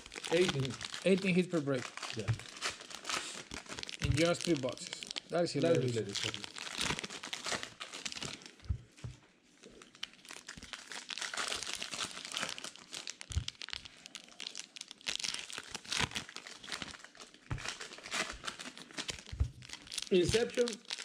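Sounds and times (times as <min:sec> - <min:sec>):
plastic wrappers crinkling: 0:00.0 - 0:21.0.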